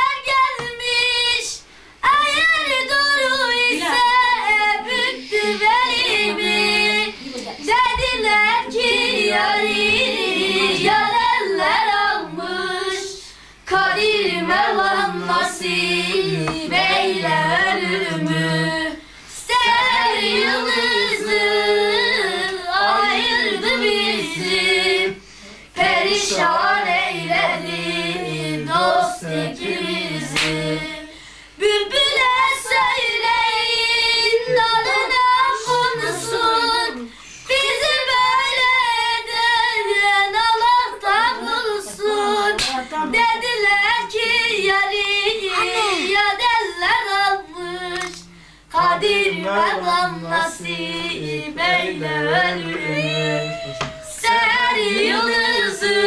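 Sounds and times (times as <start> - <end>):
unaccompanied folk singing: 0.0 - 56.0
boy singing high: 45.4 - 46.2, 52.7 - 54.3.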